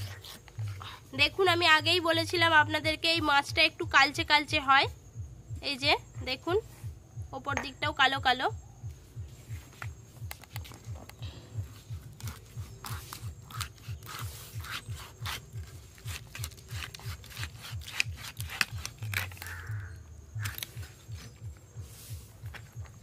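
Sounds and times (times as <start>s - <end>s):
low pulsing beat: 0.1s - 23.0s.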